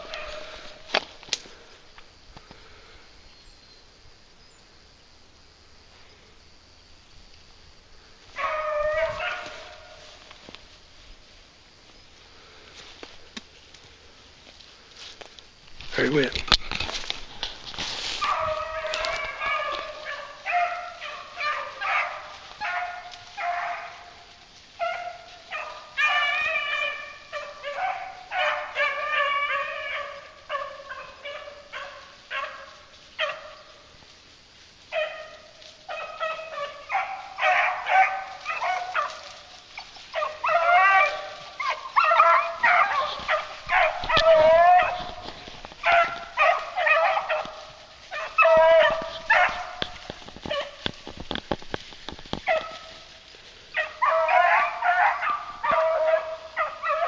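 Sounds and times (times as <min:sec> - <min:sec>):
hounds baying: 0:00.0 - 0:01.8, 0:08.0 - 0:11.2, 0:16.0 - 0:34.2, 0:34.8 - 0:57.0.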